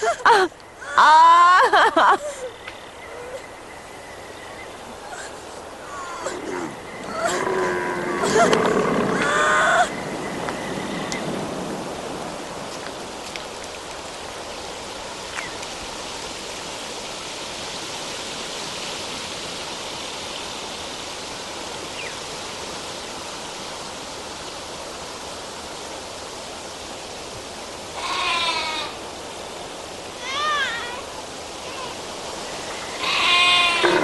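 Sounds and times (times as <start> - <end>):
outdoor ambient hiss: 0.0 - 34.0
sheep bleating: 28.0 - 28.9, 33.0 - 34.0.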